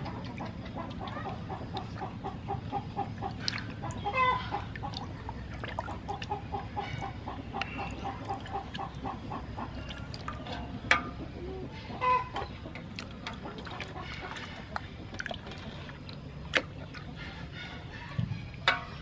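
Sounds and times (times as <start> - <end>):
chickens clucking: 0.0 - 19.0.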